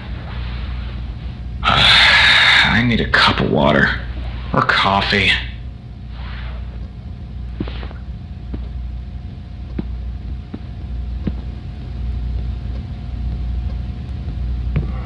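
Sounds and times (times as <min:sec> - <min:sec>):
constant hum tone: 0:00.0 - 0:15.0
steady low rumble: 0:00.0 - 0:15.0
faint taps: 0:08.5 - 0:15.0.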